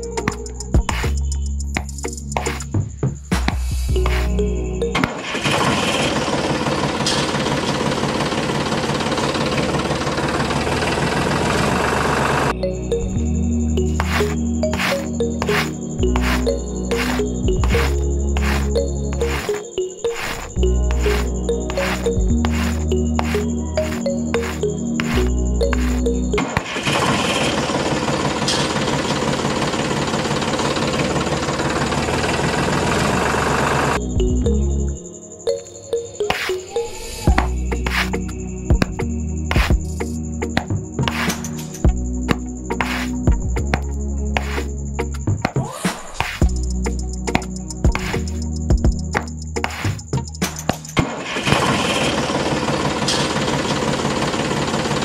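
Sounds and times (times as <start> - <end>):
small engine knocking rhythmically: 27.0 - 34.0, 51.6 - 55.0.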